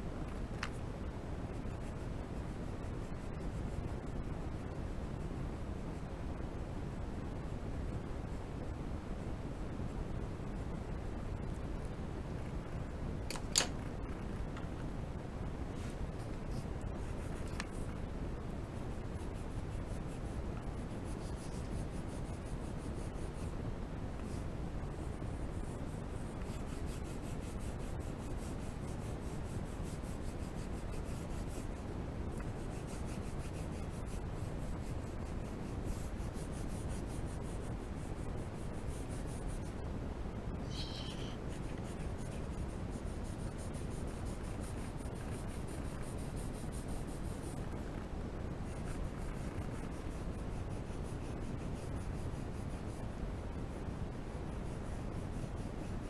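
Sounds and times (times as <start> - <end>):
pencil rubbing on paper: 19.0 - 23.6, 25.4 - 39.8, 40.8 - 47.7, 48.6 - 53.0.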